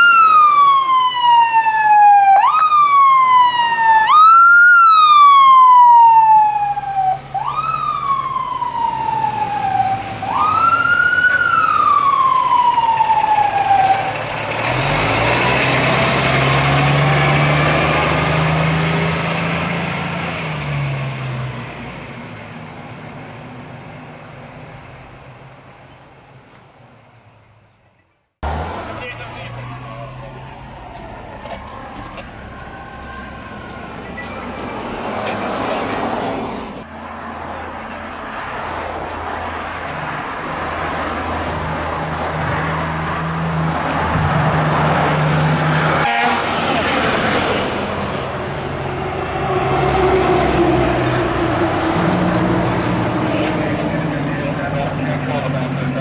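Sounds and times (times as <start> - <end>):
fire truck siren wind-ups: 0.0 - 21.9, 28.4 - 36.9, 40.2 - 54.6
diesel engine pulling away: 2.4 - 25.9, 28.4 - 56.0.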